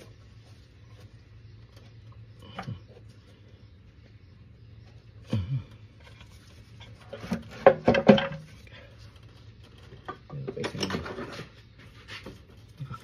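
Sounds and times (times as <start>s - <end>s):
tools and engine parts clattering: 6.0s - 13.0s.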